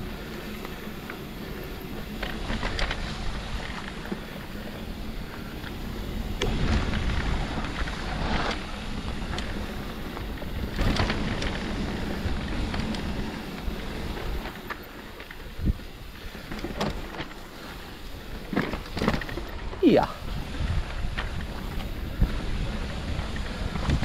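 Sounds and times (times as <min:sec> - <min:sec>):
bike tyres rumbling: 0:00.0 - 0:24.0
bike clicks and knocks: 0:00.1 - 0:19.8, 0:20.4 - 0:24.0
wind on microphone: 0:20.0 - 0:24.0.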